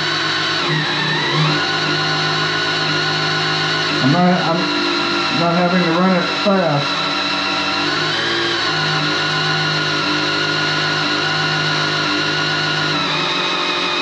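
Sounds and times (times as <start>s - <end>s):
electric drill running: 0.0s - 14.0s.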